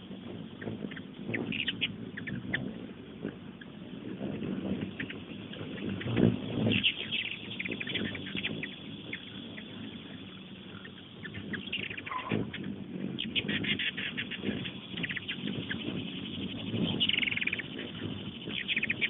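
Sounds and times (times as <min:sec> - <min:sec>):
hummingbirds chipping and twittering: 0:00.0 - 0:19.0
low background noise: 0:00.0 - 0:19.0.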